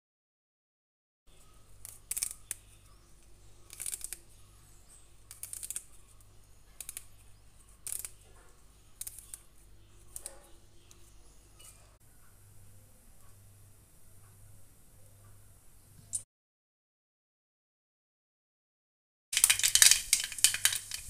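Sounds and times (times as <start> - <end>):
leaves rustling and snapping: 3.6 - 4.3, 5.3 - 6.0, 7.8 - 8.2, 19.4 - 21.0.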